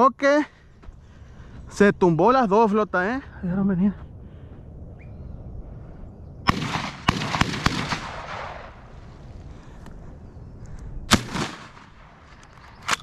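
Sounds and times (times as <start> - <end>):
shotgun shots: 6.5 - 8.9, 11.1 - 13.0.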